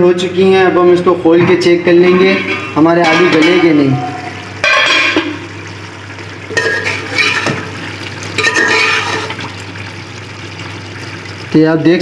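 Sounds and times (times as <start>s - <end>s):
metal utensil clattering on pot: 2.1s - 3.8s, 4.6s - 5.4s, 6.5s - 7.7s, 8.4s - 9.4s.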